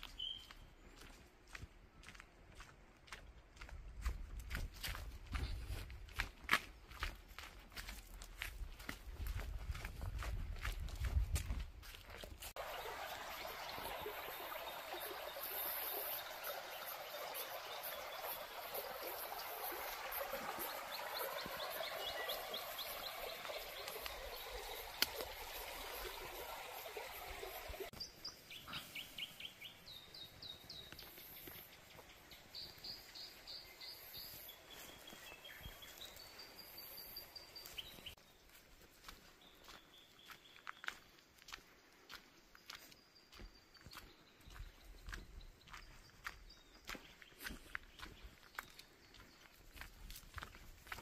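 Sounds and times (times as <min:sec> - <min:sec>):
forest birds calling: 0:00.0 - 0:01.1, 0:12.6 - 0:41.2
rushing river water: 0:12.5 - 0:28.0.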